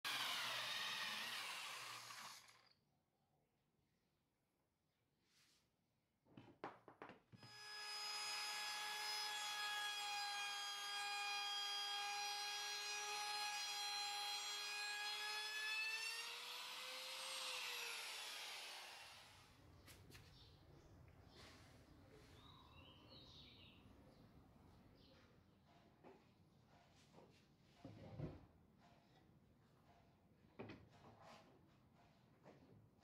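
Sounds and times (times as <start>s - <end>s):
router motor whine: 0.1s - 2.8s, 7.4s - 19.4s.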